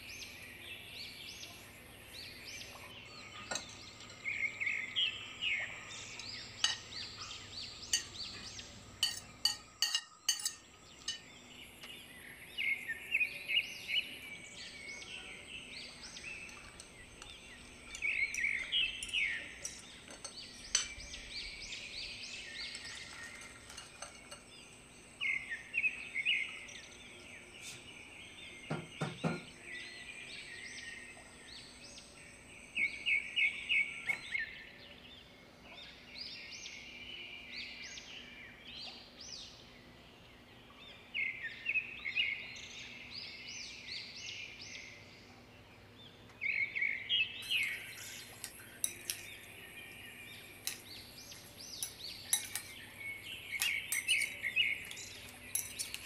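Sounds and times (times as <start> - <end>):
spoon scraping glass bowl: 22.7 - 24.5, 47.5 - 49.5, 50.3 - 56.0.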